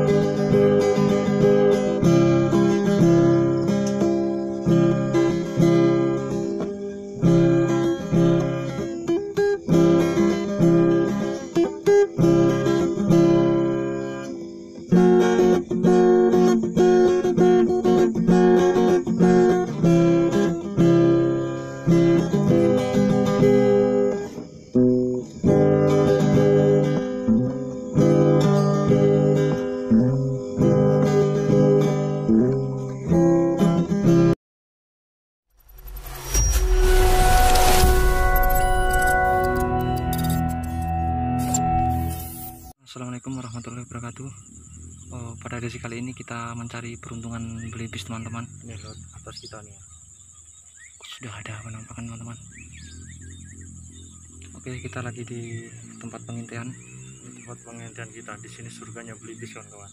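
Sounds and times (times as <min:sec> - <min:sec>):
acoustic guitar music: 0:00.0 - 0:34.4, 0:36.0 - 0:42.8, 0:44.8 - 0:49.9, 0:51.0 - 0:59.9.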